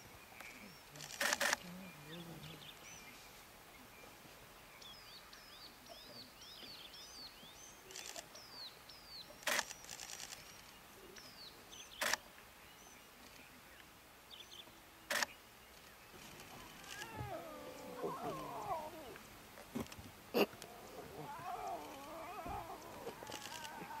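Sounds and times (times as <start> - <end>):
rapid faint clicking: 21.6 - 24.0
sharp clicks: 23.0 - 23.8.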